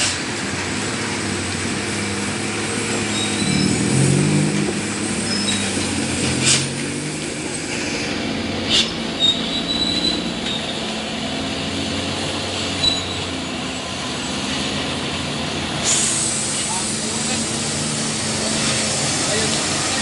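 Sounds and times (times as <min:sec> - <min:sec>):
truck engine rumble: 0:00.0 - 0:20.0
high brake squeals: 0:03.0 - 0:04.0, 0:05.2 - 0:06.7, 0:08.7 - 0:10.9, 0:12.8 - 0:13.6.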